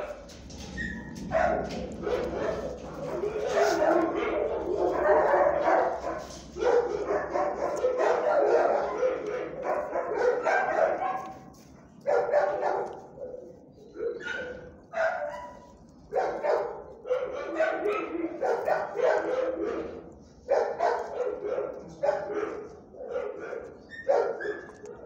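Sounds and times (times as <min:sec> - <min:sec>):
dog vocalizing: 0:00.0 - 0:11.3.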